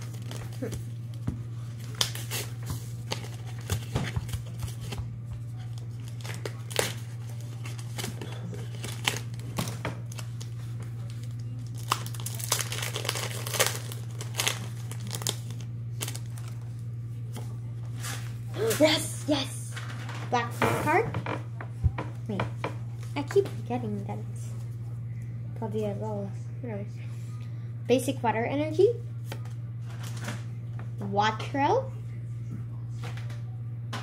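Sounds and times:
foil wrapper tearing and crinkling: 0.0 - 5.0, 5.6 - 16.8, 29.9 - 30.4
steady low hum: 0.0 - 34.0.

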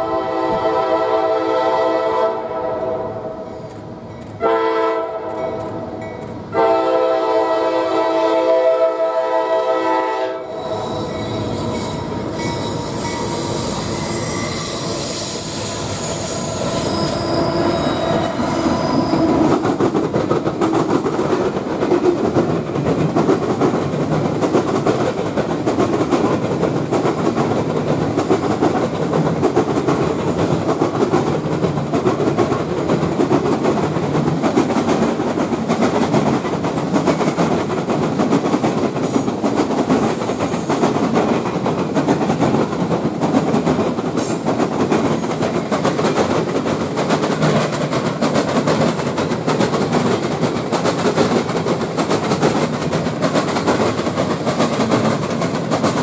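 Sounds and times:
train wheels rumbling over track: 2.7 - 9.4, 10.4 - 56.0
high-pitched wheel squeals: 10.5 - 19.5.

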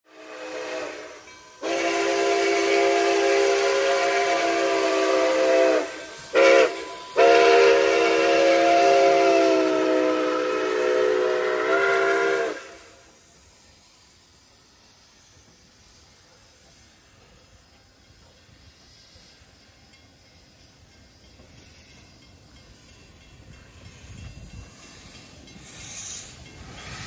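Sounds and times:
steam whistle blasts: 0.1 - 13.2.

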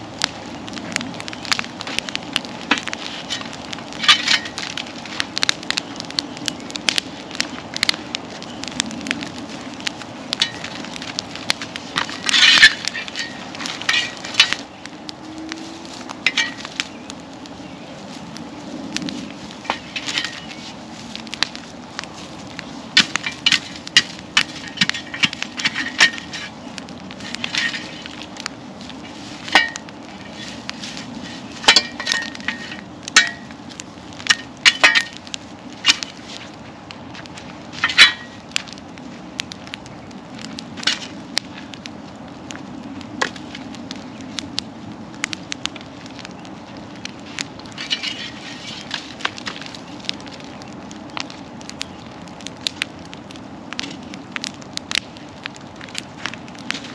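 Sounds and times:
bonfire crackling and popping: 0.0 - 56.9
sharp snaps of fire: 0.0 - 56.9.

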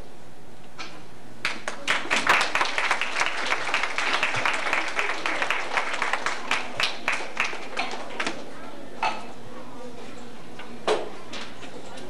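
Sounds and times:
audience applause: 1.4 - 8.3.

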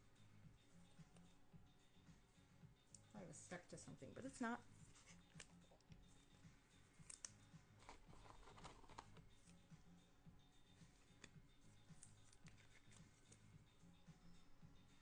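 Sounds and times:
cards and plastic holders clicking: 7.0 - 9.2.

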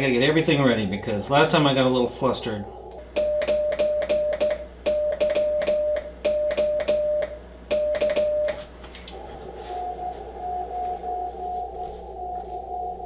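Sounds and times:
morse code sidetone beeping: 3.1 - 8.7, 9.6 - 13.0.

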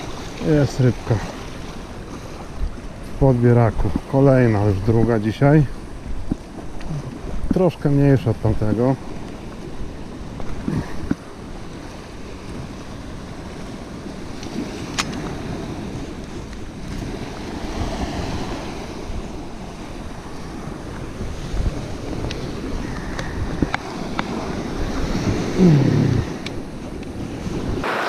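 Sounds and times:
waves washing onto rocks: 0.0 - 28.0
wind buffeting microphone: 0.0 - 28.0.

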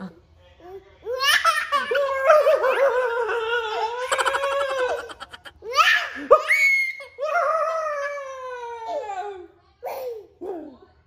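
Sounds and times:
toddler giggling: 1.7 - 6.4.

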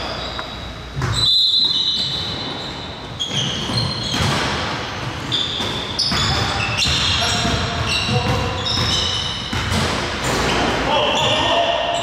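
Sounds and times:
sneakers squeaking on court: 0.0 - 12.0
basketball bouncing: 1.0 - 1.2, 3.3 - 10.5.

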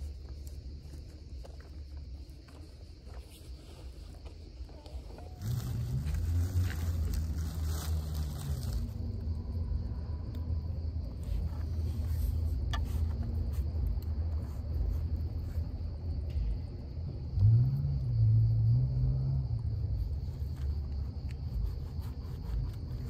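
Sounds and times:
plastic bag rustling: 5.4 - 9.0.

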